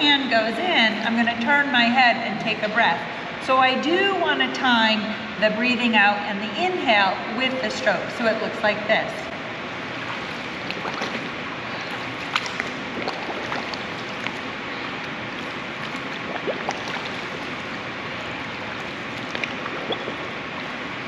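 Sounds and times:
pool water sloshing: 0:06.8 - 0:21.0
small splashes and drips: 0:09.8 - 0:21.0.

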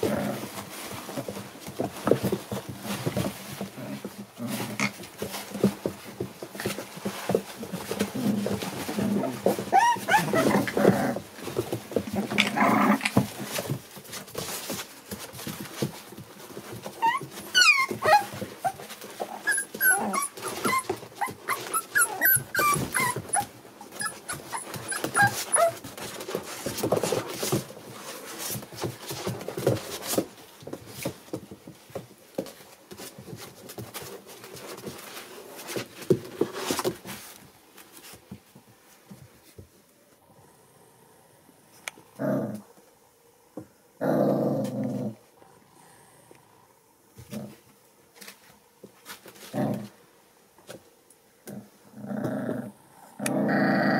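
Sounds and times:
paws scratching and shuffling: 0:00.0 - 0:40.3, 0:44.6 - 0:51.8
puppies whimpering and squeaking: 0:09.6 - 0:10.9, 0:16.8 - 0:26.0.

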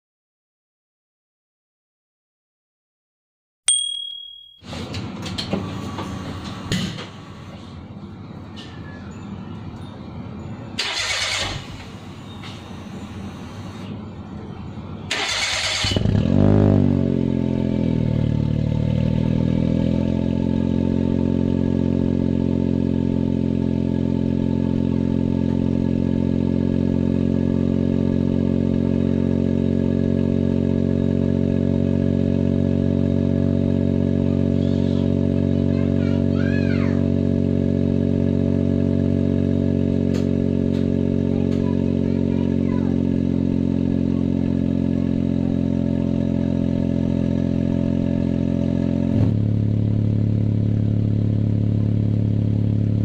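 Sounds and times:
car engine starting and revving: 0:10.8 - 0:13.9, 0:15.1 - 0:53.0
car engine idling: 0:17.1 - 0:53.0.

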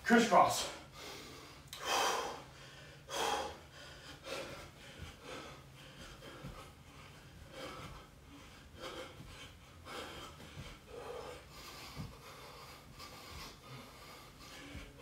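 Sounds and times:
man breathing hard: 0:00.6 - 0:15.0
soft thuds: 0:06.0 - 0:08.2, 0:08.9 - 0:11.0, 0:11.8 - 0:13.6.

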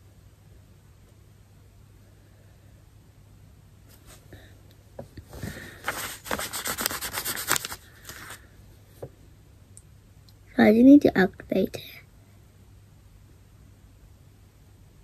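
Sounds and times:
rubbing and scraping strokes: 0:05.7 - 0:08.4.

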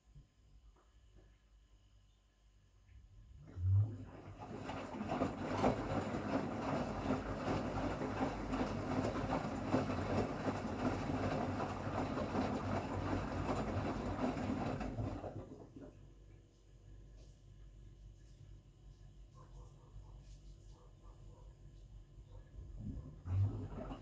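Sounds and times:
washing machine drum rumbling: 0:03.9 - 0:15.9, 0:23.0 - 0:24.0.

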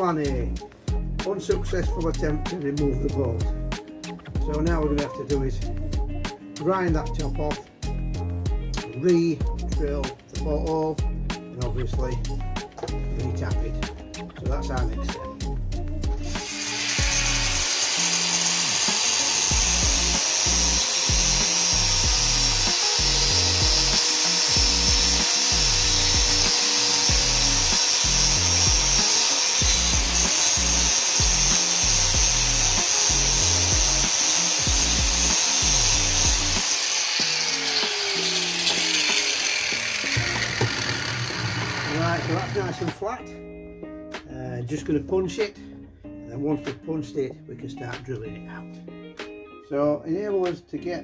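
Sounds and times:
angle grinder grinding steel: 0:16.2 - 0:42.9.

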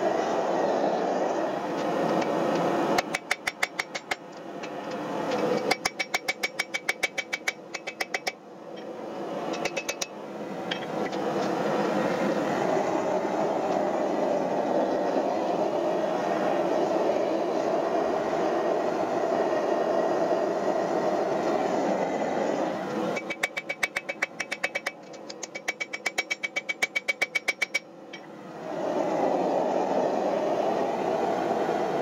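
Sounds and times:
forge roaring: 0:28.3 - 0:32.0.

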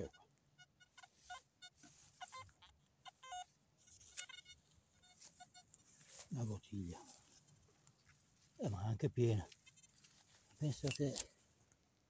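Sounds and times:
metal detector beeping: 0:00.0 - 0:05.7.

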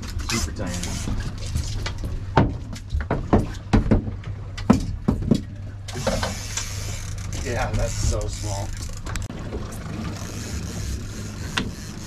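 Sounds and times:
boat engine rumble: 0:00.0 - 0:12.0.

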